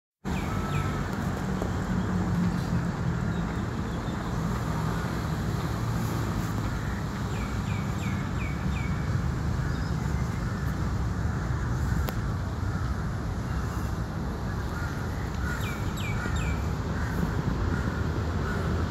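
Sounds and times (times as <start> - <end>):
distant city traffic rumble: 0.2 - 18.9.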